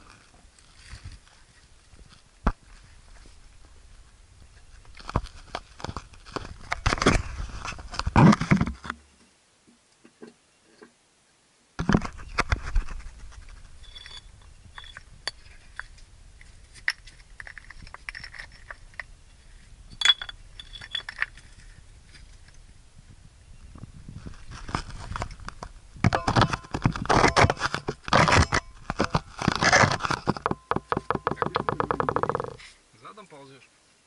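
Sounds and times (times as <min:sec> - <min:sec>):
stones clattering: 0:13.8 - 0:15.9, 0:16.7 - 0:19.1, 0:20.0 - 0:22.3, 0:24.4 - 0:32.6.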